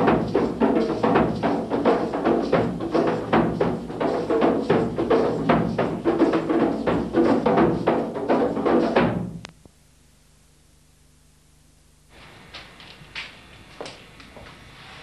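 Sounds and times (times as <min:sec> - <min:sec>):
drums in fast rhythm: 0:00.0 - 0:09.4.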